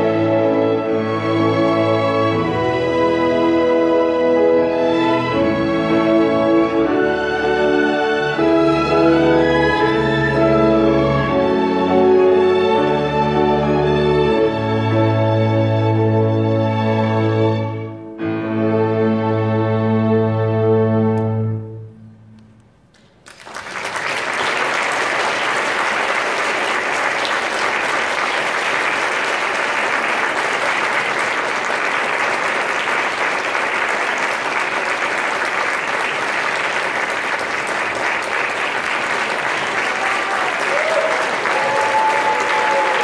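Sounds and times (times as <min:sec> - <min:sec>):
audience applauding: 0:23.0 - 0:43.0.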